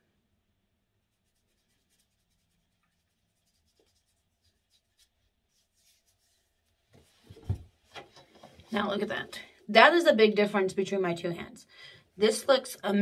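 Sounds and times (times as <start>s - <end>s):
skin rubbing on skin: 1.1s - 7.2s.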